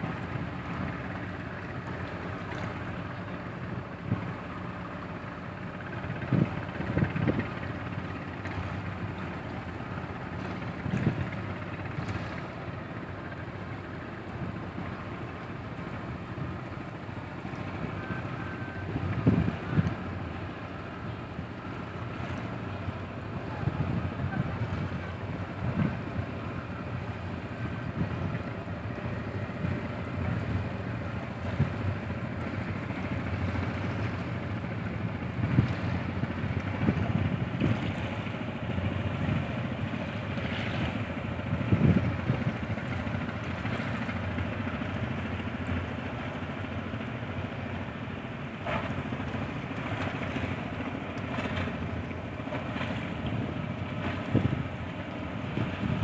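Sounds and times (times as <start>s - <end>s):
ship engines idling rumble: 0.0s - 56.0s
wind buffeting microphone: 5.9s - 9.4s, 17.4s - 20.3s, 21.2s - 45.0s, 48.6s - 56.0s.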